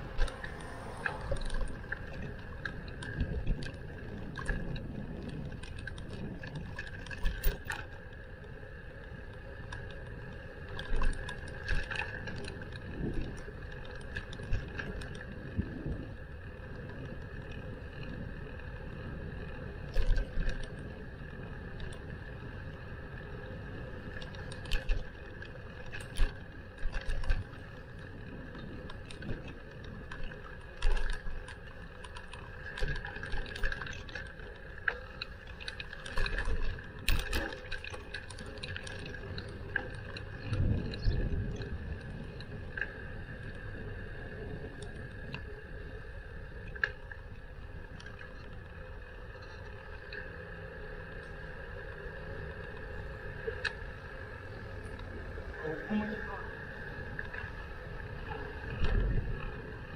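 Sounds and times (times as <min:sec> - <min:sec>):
bicycle rattling over bumps: 0:00.0 - 0:59.9
wind and tyres rumbling: 0:00.0 - 0:59.9.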